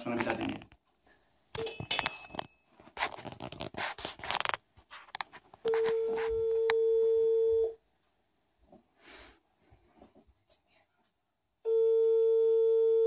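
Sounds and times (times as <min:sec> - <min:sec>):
telephone ringback beep: 0:05.7 - 0:07.8, 0:11.7 - 0:13.0.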